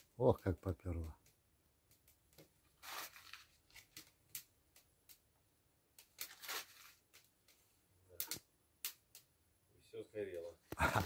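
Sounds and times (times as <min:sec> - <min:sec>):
fire crackling: 0:00.0 - 0:11.0
paper rustling and tearing: 0:02.8 - 0:04.1, 0:06.1 - 0:07.3.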